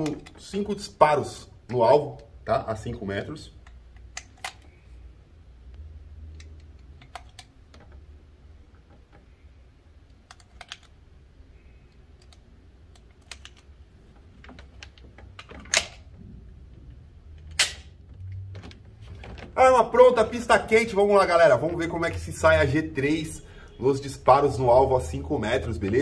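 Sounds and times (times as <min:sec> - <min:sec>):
pistol metal clacks: 0:14.4 - 0:16.1, 0:17.4 - 0:18.0
cartridges clicking into magazine: 0:15.6 - 0:16.0, 0:17.4 - 0:17.9.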